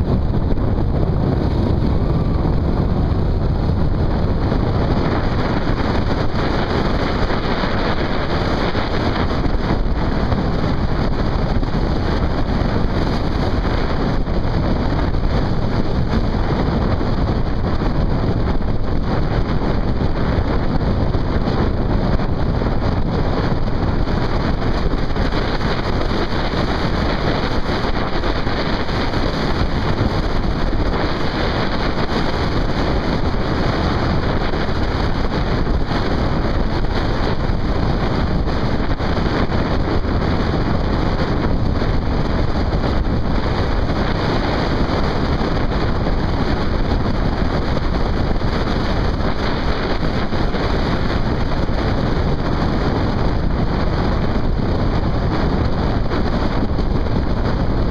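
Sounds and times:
engine and tyre noise: 0:00.0 - 0:57.9
wind rush on microphone: 0:00.0 - 0:57.9.

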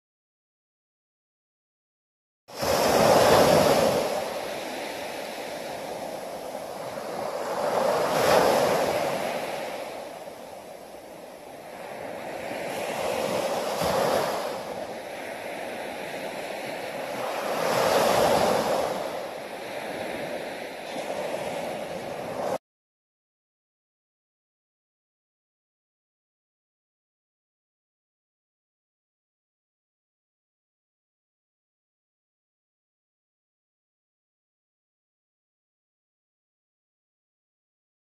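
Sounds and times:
small waves breaking on beach: 0:02.5 - 0:22.6.

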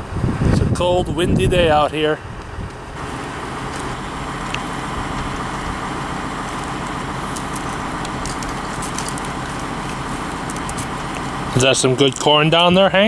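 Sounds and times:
wind noise on microphone: 0:00.0 - 0:05.9
engine running: 0:01.7 - 0:13.0.

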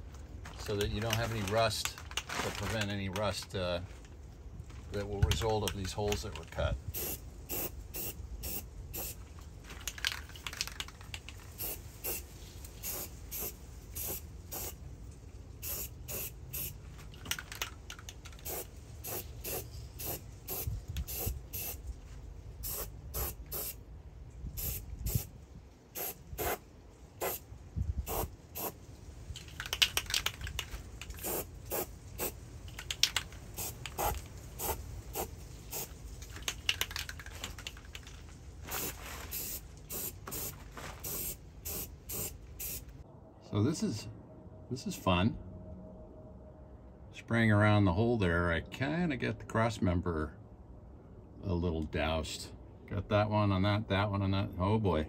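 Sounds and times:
aerosol spray can hissing: 0:07.0 - 0:09.2, 0:11.6 - 0:12.2, 0:12.8 - 0:14.8, 0:15.6 - 0:16.8, 0:18.4 - 0:21.8, 0:22.6 - 0:23.8, 0:24.6 - 0:25.3, 0:26.0 - 0:26.6, 0:27.2 - 0:27.4, 0:28.1 - 0:28.8, 0:31.2 - 0:32.4, 0:33.6 - 0:35.9, 0:38.8 - 0:42.8.

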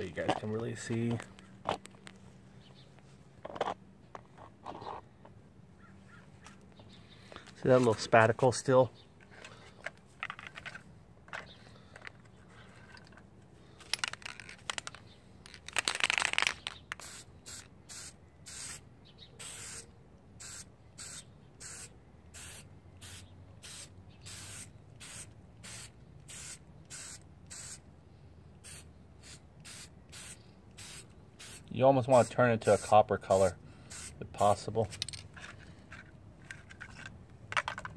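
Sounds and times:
aerosol spray hissing bursts: 0:17.0 - 0:18.8, 0:19.4 - 0:19.8, 0:20.4 - 0:27.8, 0:28.6 - 0:33.0, 0:33.9 - 0:34.2.

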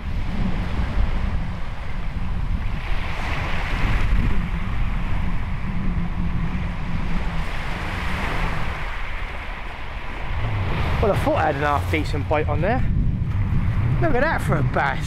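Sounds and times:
wind buffeting microphone: 0:00.0 - 0:15.0
waves washing up shingle beach: 0:00.1 - 0:05.7, 0:06.4 - 0:12.9.

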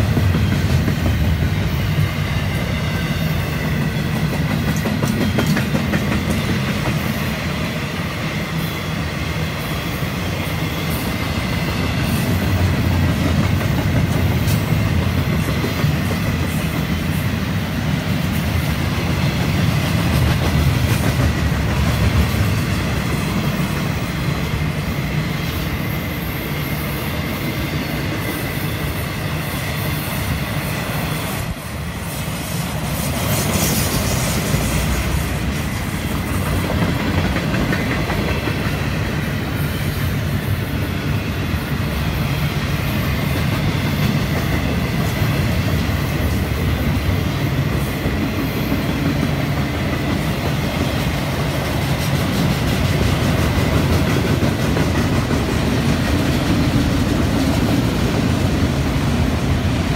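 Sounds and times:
wheels clattering on rails: 0:00.0 - 0:07.3, 0:33.0 - 0:39.7, 0:47.5 - 0:58.8
freight train rumbling past: 0:00.0 - 0:59.9.

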